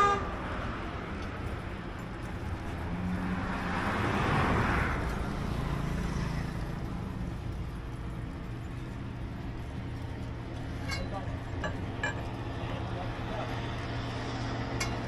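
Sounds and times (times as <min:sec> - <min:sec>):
low engine hum: 0:00.0 - 0:15.0
vehicle passing by: 0:00.4 - 0:10.4.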